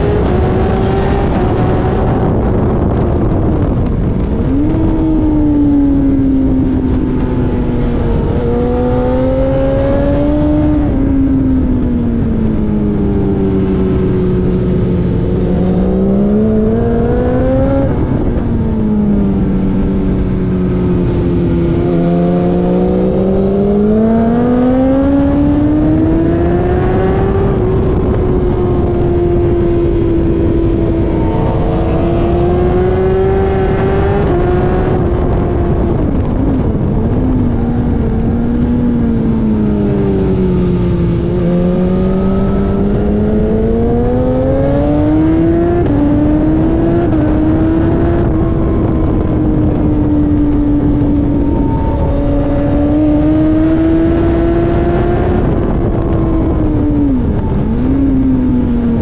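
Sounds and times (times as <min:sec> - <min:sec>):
racing car engine revving: 0:21.0 - 0:59.0.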